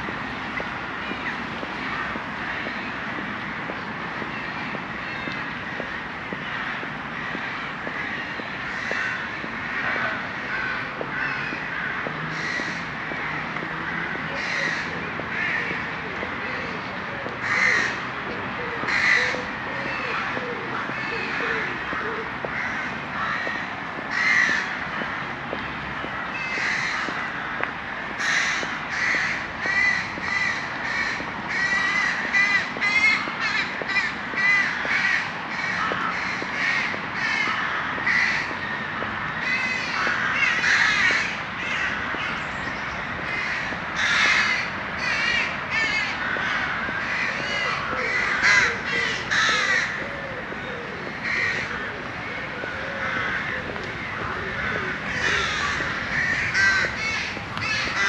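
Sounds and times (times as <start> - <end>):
crows cawing: 0.9 - 58.0.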